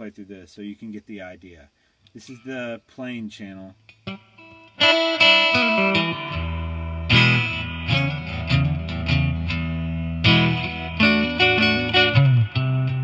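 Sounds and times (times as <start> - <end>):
clean electric guitar chords: 4.0 - 13.0.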